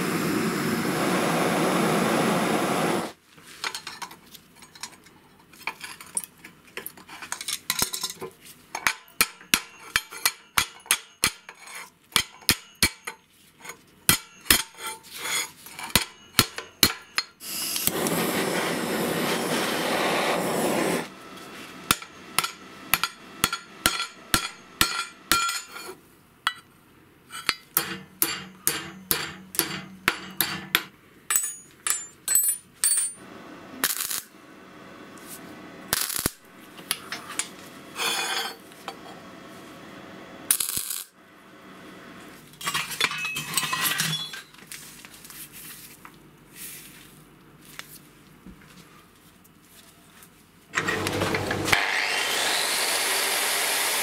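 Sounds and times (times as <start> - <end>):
metal clinking on metal: 22.0 - 25.9, 27.4 - 33.2, 42.6 - 44.6.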